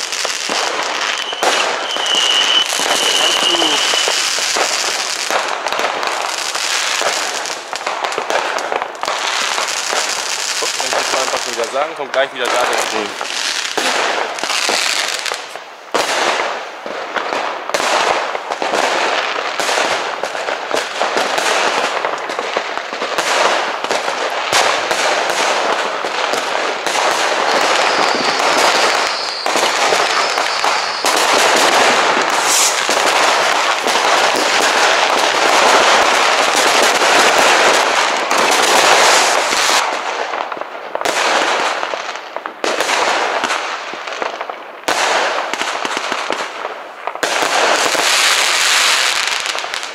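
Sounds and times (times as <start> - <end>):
high firework whistle: 0.0 - 5.4, 27.0 - 34.9
fireworks banging and crackling: 0.0 - 49.9.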